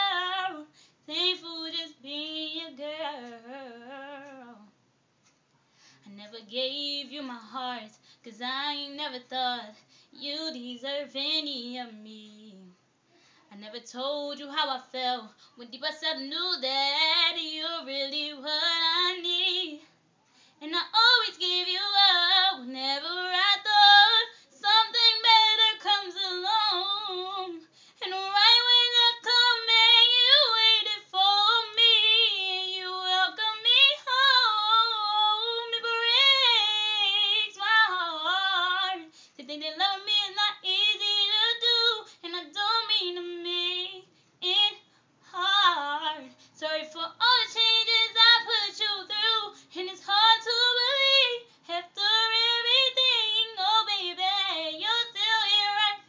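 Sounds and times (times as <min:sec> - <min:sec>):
woman singing a cappella: 0:00.0 - 0:04.8, 0:06.0 - 0:12.8, 0:13.5 - 0:56.0
singer breathing: 0:00.7 - 0:01.0, 0:09.8 - 0:10.2, 0:13.1 - 0:13.5, 0:20.2 - 0:20.6, 0:27.6 - 0:28.0, 0:39.1 - 0:39.4.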